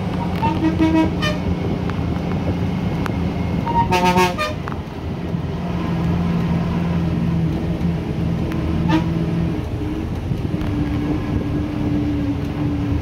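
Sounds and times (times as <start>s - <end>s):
bus engine and road noise: 0.0s - 13.0s
vehicle horn honking: 0.4s - 1.4s, 3.7s - 4.6s, 8.8s - 9.2s.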